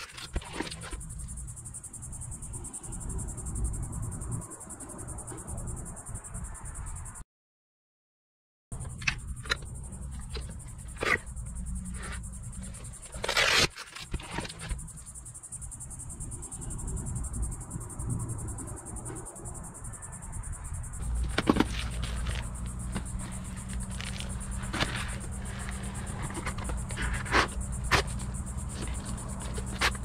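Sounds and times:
high insect buzz: 8.8s - 30.0s
webbing and buckle handling: 21.0s - 30.0s.

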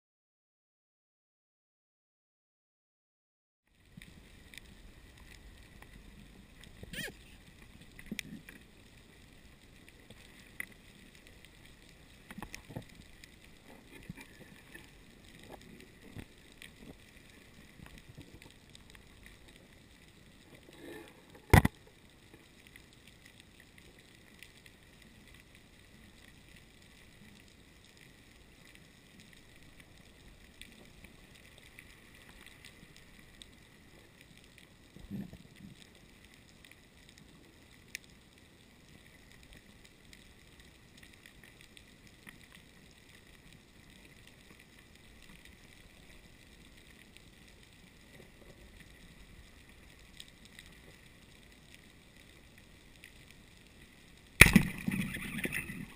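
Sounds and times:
underwater hiss: 20.4s - 21.5s
underwater clicks and knocks: 21.3s - 21.9s
loud sharp crack: 54.4s - 55.4s.

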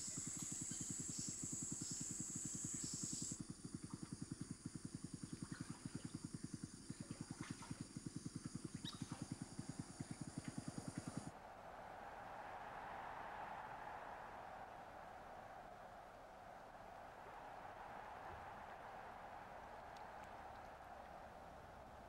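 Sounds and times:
faint chirps: 0.0s - 3.4s
high-pitched insect buzz: 0.0s - 3.4s.

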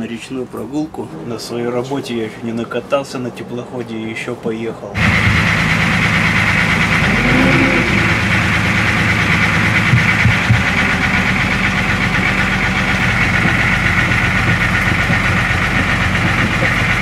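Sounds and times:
boat engine droning: 5.0s - 17.0s.

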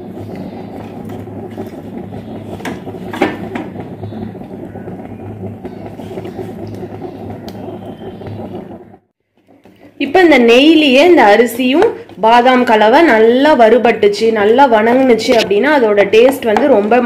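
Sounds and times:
low mechanical hum: 0.0s - 17.0s
taps and knocks in a pan: 16.2s - 16.9s.

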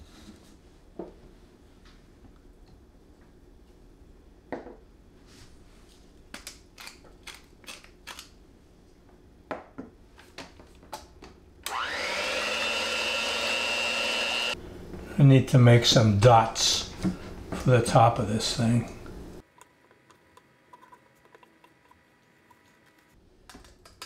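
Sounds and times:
kitchen appliance motor whining: 11.6s - 14.6s.

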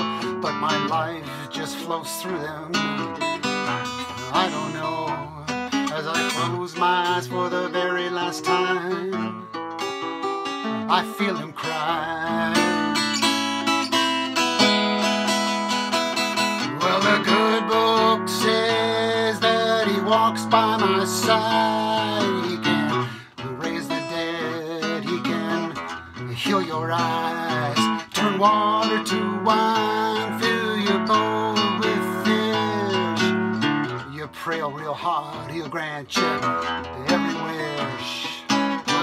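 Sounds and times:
acoustic guitar blues solo: 0.0s - 39.0s.

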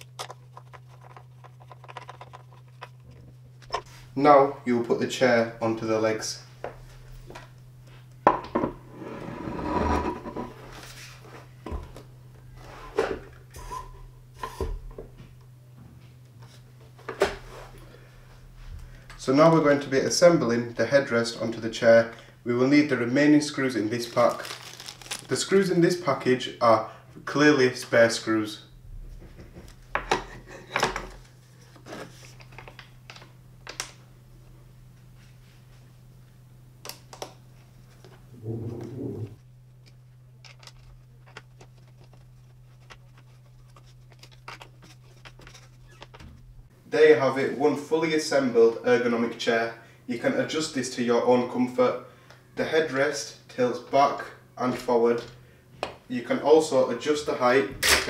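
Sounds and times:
rubbing and scraping: 0.0s - 3.2s, 8.8s - 11.2s, 40.7s - 46.2s.

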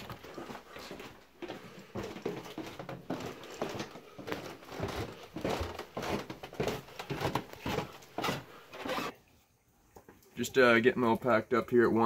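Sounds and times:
footsteps down stairs: 0.0s - 9.0s
coats and backpack rustling: 0.0s - 9.2s.

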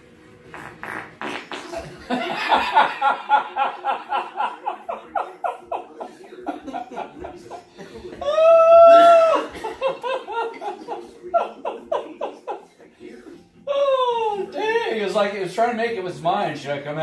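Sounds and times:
people laughing hard: 1.7s - 12.8s.

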